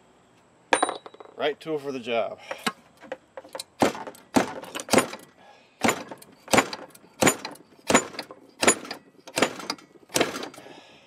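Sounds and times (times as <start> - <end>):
sharp metallic clanks: 3.4 - 10.7.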